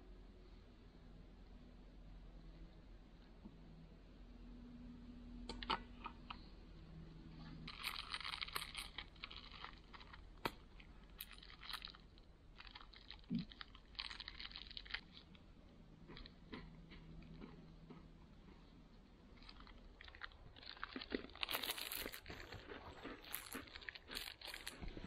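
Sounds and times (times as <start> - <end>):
faint crunching and crackling: 5.4 - 25.0.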